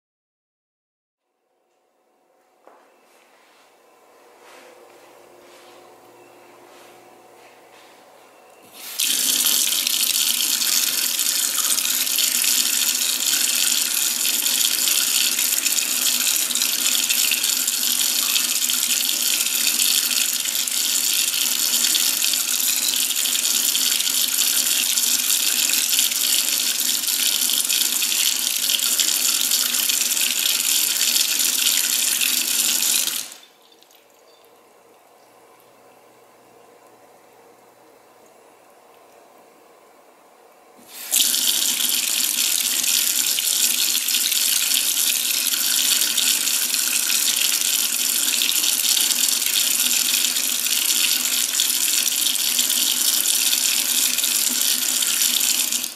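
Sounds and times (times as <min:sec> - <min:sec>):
faucet running into steel sink: 0:08.6 - 0:34.4, 0:40.8 - 0:55.9.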